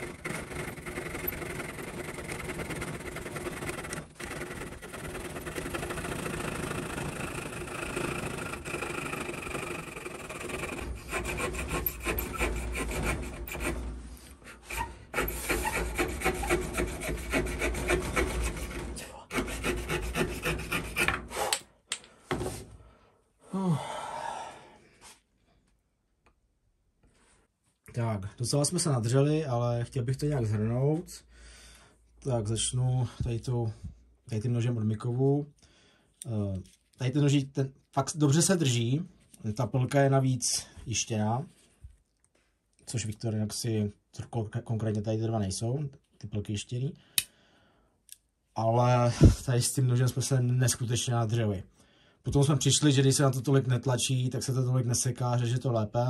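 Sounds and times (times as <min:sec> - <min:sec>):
saw rasping through wood: 0:00.0 - 0:21.6
knocks and handling sounds: 0:21.0 - 0:22.8.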